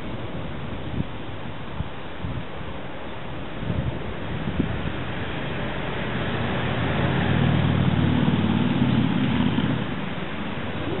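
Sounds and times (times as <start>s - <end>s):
engine passing by: 4.1s - 11.0s.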